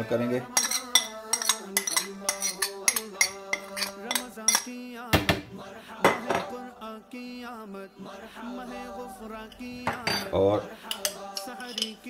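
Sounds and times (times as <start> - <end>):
spoon clinking against bowl: 0.5 - 4.8, 9.6 - 12.0.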